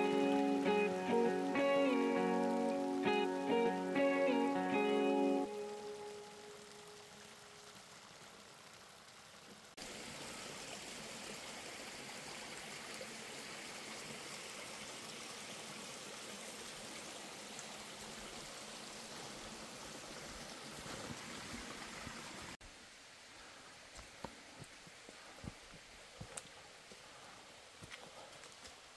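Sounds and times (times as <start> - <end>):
stream water rushing: 0.0 - 22.6.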